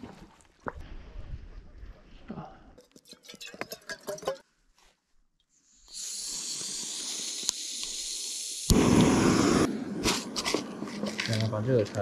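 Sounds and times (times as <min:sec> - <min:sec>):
steady hiss: 0:05.6 - 0:12.0.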